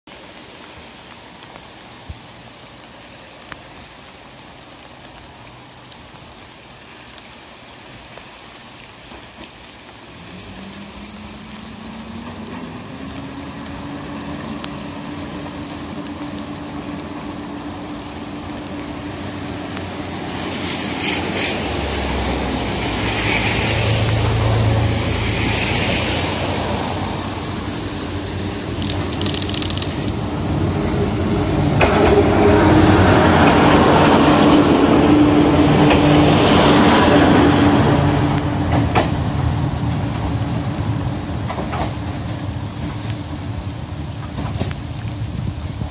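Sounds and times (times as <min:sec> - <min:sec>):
steady rain hiss: 0:00.0 - 0:45.9
deep train rumble: 0:07.8 - 0:45.9
diesel train engine approaching: 0:09.1 - 0:45.6.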